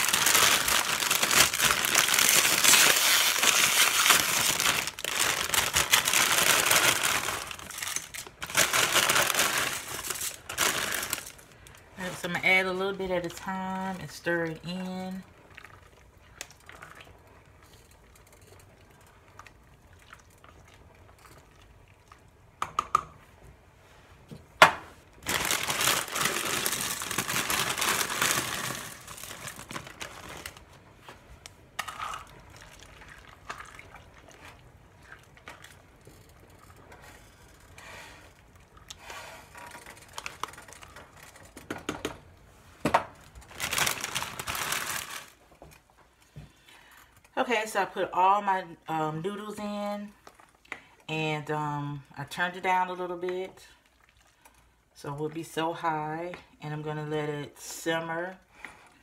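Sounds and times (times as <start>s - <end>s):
plastic bag crinkling: 0.0s - 12.3s, 25.2s - 30.8s, 39.7s - 41.6s, 43.2s - 45.5s.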